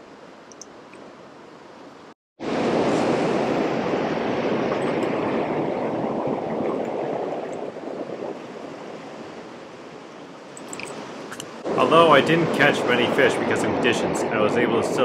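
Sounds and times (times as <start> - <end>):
river current washing over rocks: 2.4 - 14.0.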